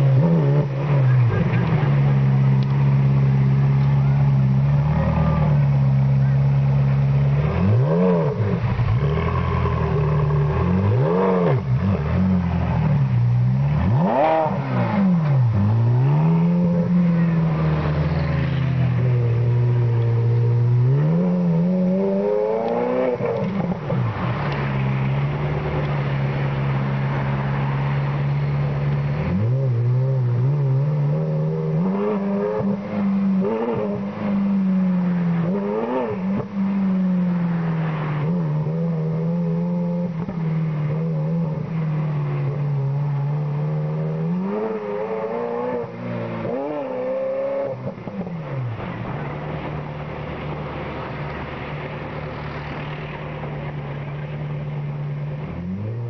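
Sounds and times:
vehicle engine revving: 0:00.0 - 0:56.0.

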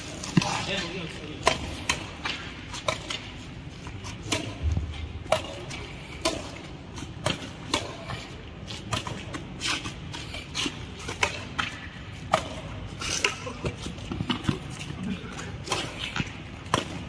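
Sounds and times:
rackets hitting shuttlecock: 0:00.0 - 0:17.0.

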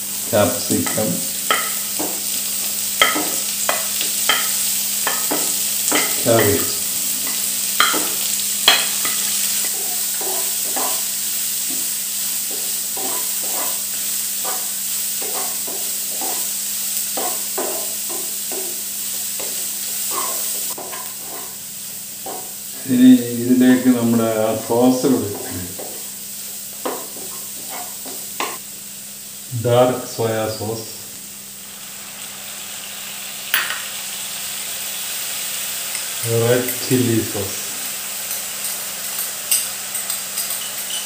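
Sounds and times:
vegetables sizzling in a wok: 0:00.0 - 0:41.0
spoon knocking and scraping pan: 0:00.7 - 0:02.4, 0:03.0 - 0:21.6, 0:22.2 - 0:22.6, 0:24.7 - 0:26.1, 0:26.8 - 0:28.6, 0:38.3 - 0:41.0.

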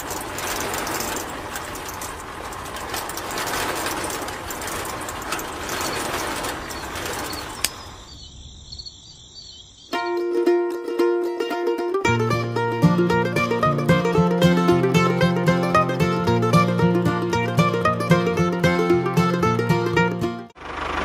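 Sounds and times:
sand and grit rattling: 0:00.0 - 0:08.2.

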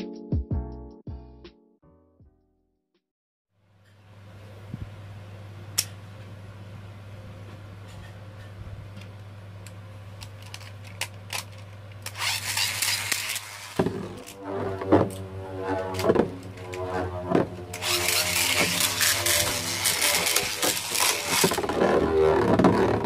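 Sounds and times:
steady low hum: 0:03.6 - 0:23.0
spinning top droning whirr: 0:09.6 - 0:23.0
spinning-top launcher whirr: 0:10.2 - 0:22.7.

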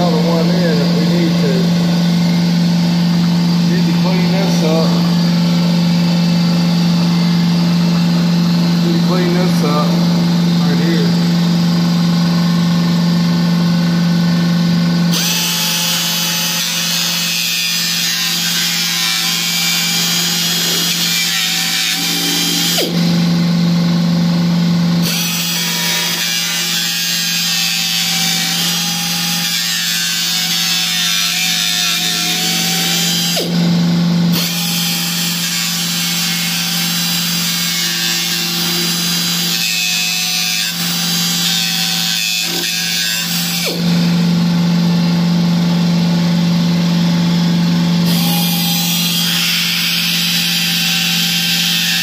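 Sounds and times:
cut-off tool motor whine: 0:00.0 - 0:45.4.

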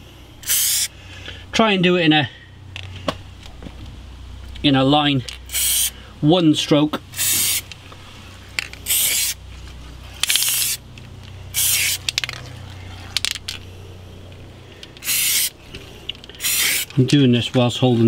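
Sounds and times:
spray can hissing: 0:00.4 - 0:00.9, 0:05.5 - 0:05.9, 0:07.2 - 0:07.7, 0:08.8 - 0:09.4, 0:10.3 - 0:10.8, 0:11.5 - 0:12.2, 0:15.0 - 0:15.6, 0:16.4 - 0:17.0.

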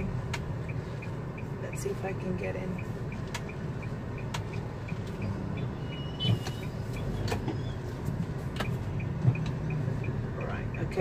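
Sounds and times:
engine and road rumble: 0:00.0 - 0:11.0
turn signal ticking: 0:00.0 - 0:11.0
sharp clicks: 0:02.7 - 0:05.3.

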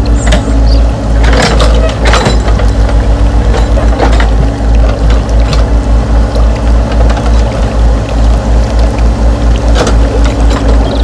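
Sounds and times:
toy excavator mechanical hum: 0:09.8 - 0:11.0.

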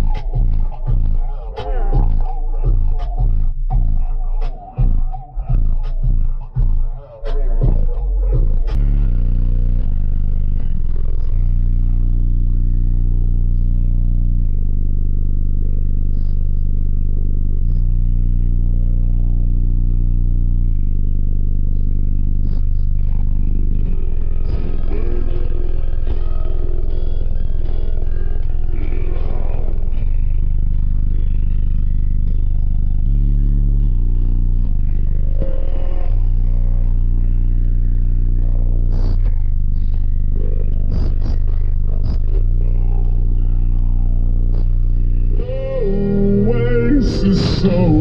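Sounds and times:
deep subwoofer bass notes: 0:00.0 - 0:48.0.

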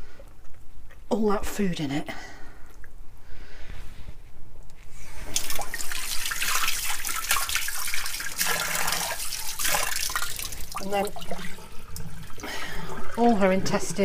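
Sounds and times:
tap water splashing into sink: 0:05.3 - 0:13.5.

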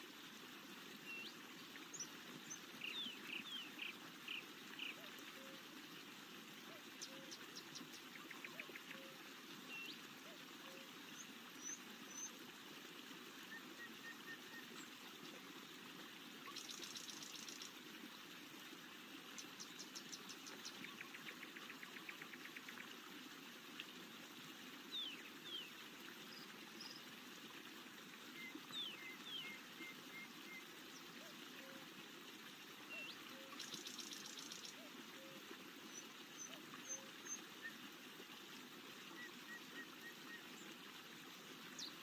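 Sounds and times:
flowing stream rushing: 0:00.0 - 0:42.0
songbird chirps and trills: 0:00.9 - 0:05.6, 0:06.6 - 0:12.4, 0:16.4 - 0:17.8, 0:19.3 - 0:23.0, 0:28.2 - 0:31.9, 0:32.8 - 0:37.8.

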